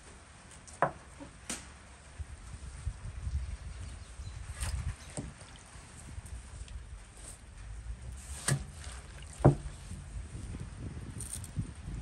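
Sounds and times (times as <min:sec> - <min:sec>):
greens swished in water by hand: 0:08.1 - 0:10.0.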